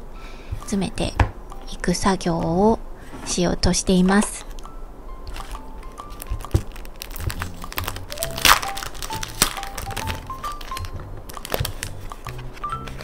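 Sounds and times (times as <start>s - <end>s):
light background music: 0.4s - 13.0s
plastic and paper crinkling: 5.3s - 13.0s.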